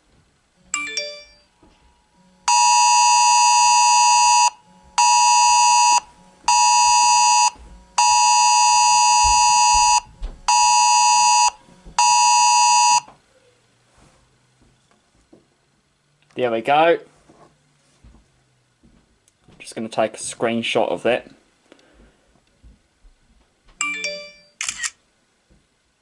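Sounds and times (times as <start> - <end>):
harsh two-pitch alarm tone: 2.4 - 13.1.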